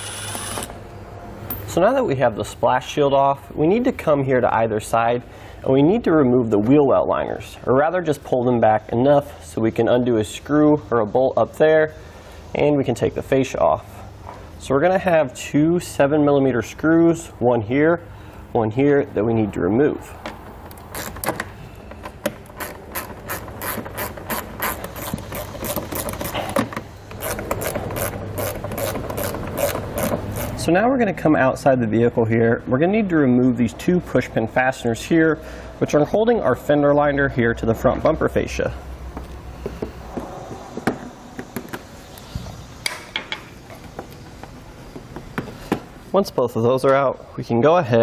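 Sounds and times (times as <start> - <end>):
hand ratchet clicking: 20.7 - 30.6.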